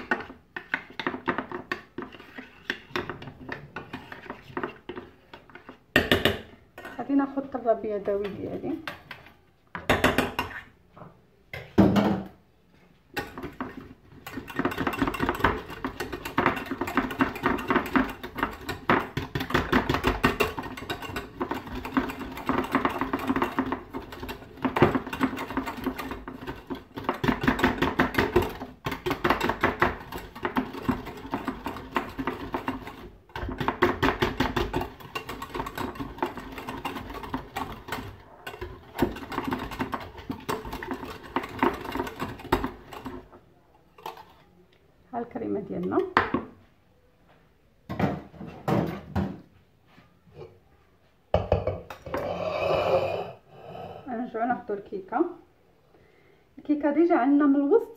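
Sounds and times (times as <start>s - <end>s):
whisk rattling against a pan: 13.2s - 43.4s.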